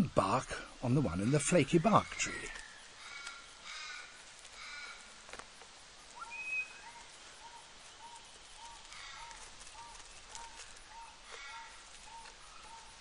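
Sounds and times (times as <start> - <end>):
harsh bird calls: 0.0 - 5.2, 6.0 - 13.0
bird chirps: 6.1 - 13.0
whistled bird note: 6.2 - 8.2.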